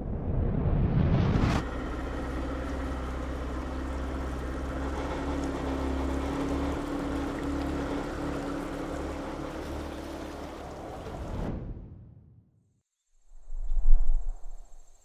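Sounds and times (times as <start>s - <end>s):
motorboat engine droning: 1.6s - 11.5s.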